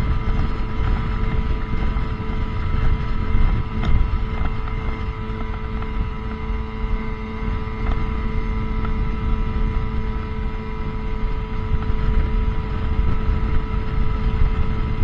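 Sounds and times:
watercraft engine humming: 0.0s - 15.0s
wind and water rumble: 0.0s - 15.0s.

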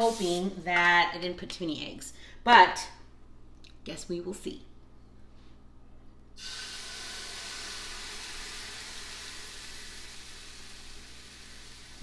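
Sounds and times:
egg batter sizzling in waffle maker: 6.4s - 12.0s.

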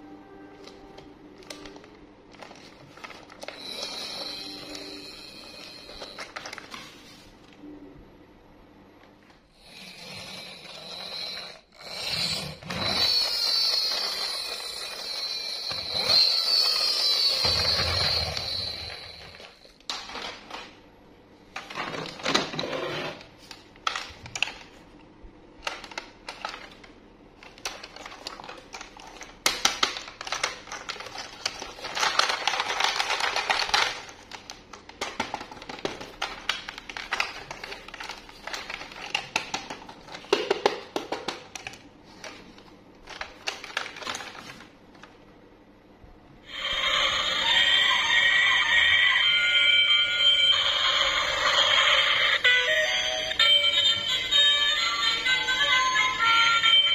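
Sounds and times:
toy train low hum: 0.0s - 7.3s, 9.5s - 20.6s, 46.4s - 56.9s
plastic and cardboard rustling: 0.6s - 5.0s, 5.8s - 7.5s, 25.6s - 45.1s
plastic toys clicking and clattering: 10.0s - 20.8s, 23.5s - 24.8s, 25.6s - 44.7s.

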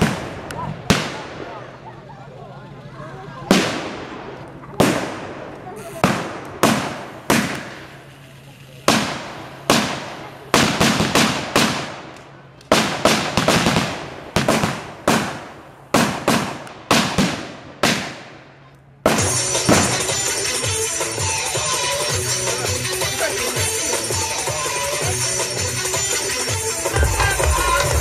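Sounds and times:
rifles firing blanks: 3.5s - 20.4s
music: 19.2s - 28.0s.

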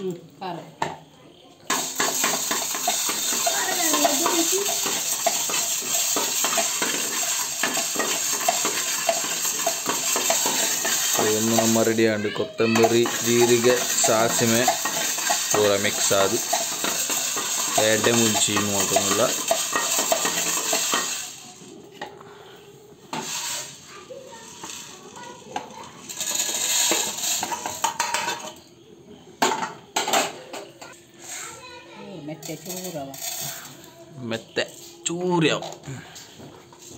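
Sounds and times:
metal clinks: 1.7s - 12.0s
spatula scraping a pan: 1.7s - 21.3s
food sizzling in oil: 1.7s - 22.0s, 23.0s - 28.8s.

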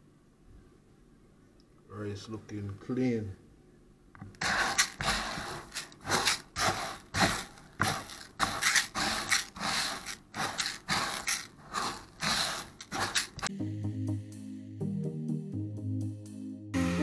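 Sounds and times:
rice rustling in plastic bowl: 4.4s - 13.5s.

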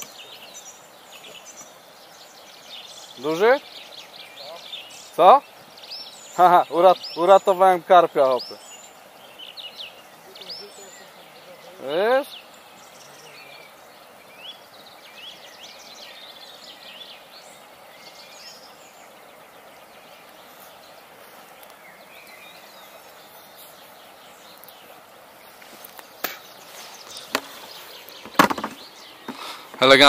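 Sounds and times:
birds chirping: 0.0s - 30.0s
steady background hiss: 0.0s - 30.0s
sharp knocks: 28.2s - 29.4s.

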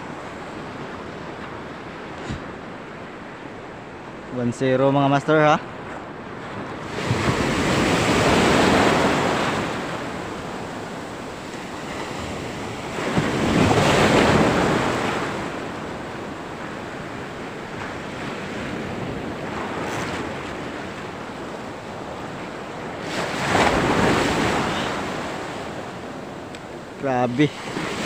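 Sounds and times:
wind on microphone: 0.0s - 2.9s
sea surf breaking: 5.2s - 28.0s.

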